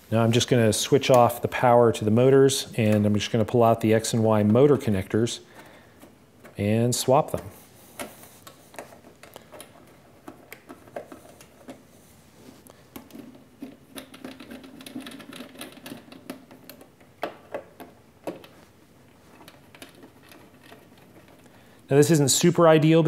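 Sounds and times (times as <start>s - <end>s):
cable connectors clicking and rattling: 2.8s - 11.8s, 12.6s - 21.6s.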